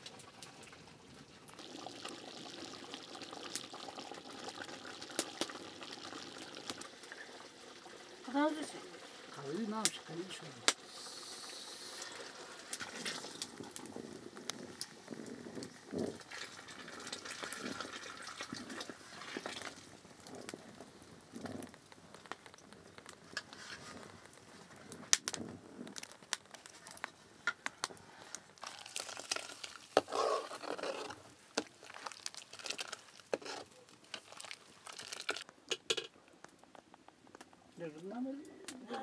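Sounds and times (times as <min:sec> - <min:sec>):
wood fire crackling: 0:00.0 - 0:39.0
liquid sloshing: 0:28.6 - 0:35.4.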